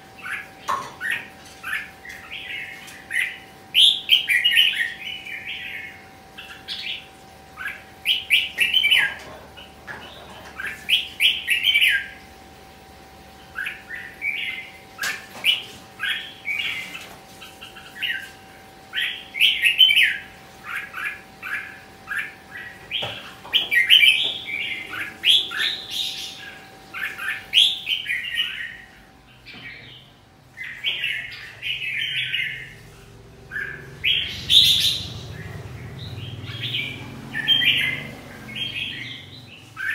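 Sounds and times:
bird chattering song: 0:00.0 - 0:12.3, 0:13.2 - 0:39.9
faint steady hum: 0:00.0 - 0:39.9.

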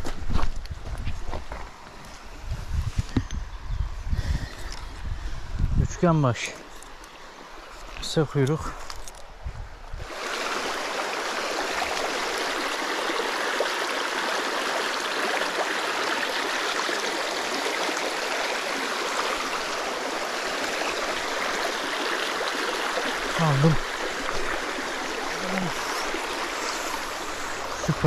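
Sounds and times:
stream rushing over rocks: 0:10.0 - 0:28.0.

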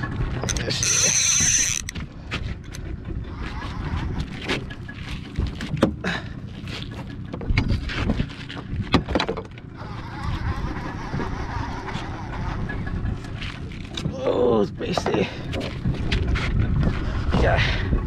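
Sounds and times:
boat engine rumble: 0:00.0 - 0:18.0
wind noise: 0:00.0 - 0:18.0.

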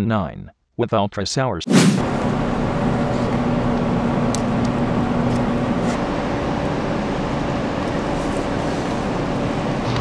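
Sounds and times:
loud even rushing noise: 0:01.7 - 0:02.1
steady machine hum: 0:02.0 - 0:10.0.

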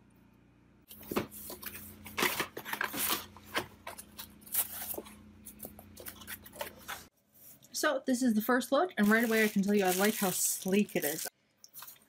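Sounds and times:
foam packing insert rustling: 0:00.9 - 0:07.1, 0:09.0 - 0:11.3
plastic wrapping crinkling: 0:09.0 - 0:12.0.

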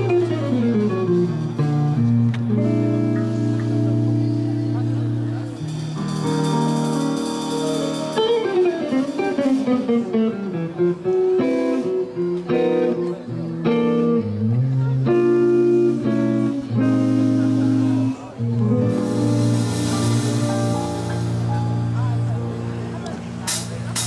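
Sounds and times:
bass guitar: 0:00.0 - 0:24.0
drums: 0:00.0 - 0:24.0
electric guitar lead: 0:00.0 - 0:24.0
keyboard: 0:00.0 - 0:24.0.

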